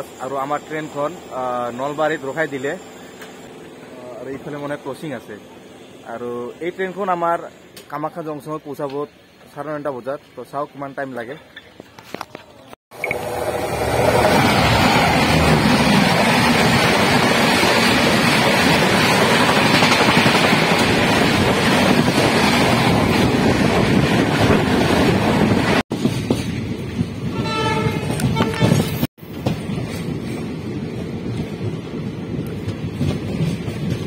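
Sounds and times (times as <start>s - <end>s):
train rushing by: 0.0s - 10.6s, 13.0s - 34.0s
train running noise: 0.0s - 34.0s
train horn: 27.3s - 29.0s.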